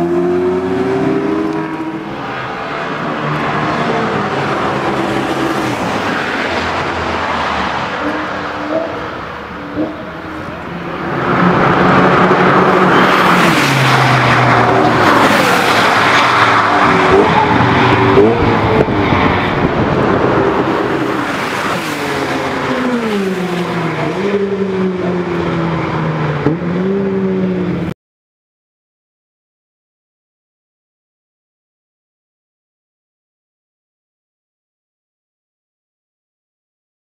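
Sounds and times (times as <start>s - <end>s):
race car engine revving: 0.0s - 27.9s.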